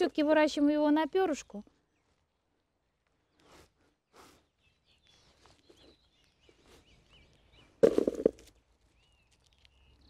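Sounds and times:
small bird chirping: 0:03.0 - 0:10.0
soft rustles on soil: 0:03.2 - 0:10.0.

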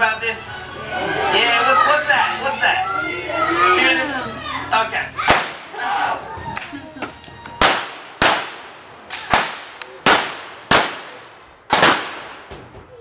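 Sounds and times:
revolver firing blanks: 0:07.6 - 0:12.8.

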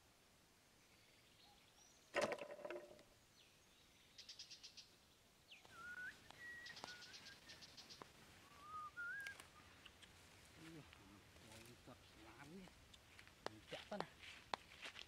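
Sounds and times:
plastic trap knocking shut: 0:02.2 - 0:03.0
bird chirps and whistles: 0:05.5 - 0:09.6.

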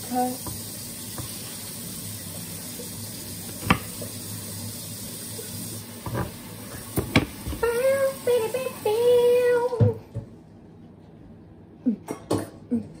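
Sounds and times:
knife chopping on board: 0:03.6 - 0:04.0.

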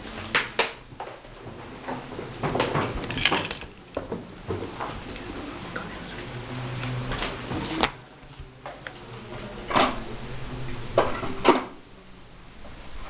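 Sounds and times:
small tools clicking and knocking: 0:03.0 - 0:03.7.

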